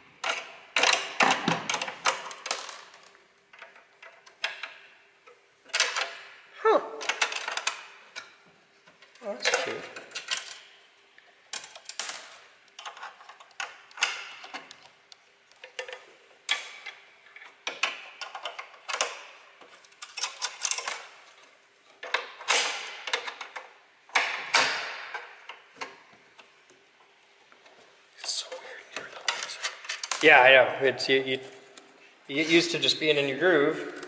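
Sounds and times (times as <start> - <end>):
metal parts clicking and clattering: 7.0 - 8.4, 9.0 - 10.8, 11.5 - 14.9, 15.5 - 25.9, 29.0 - 30.2.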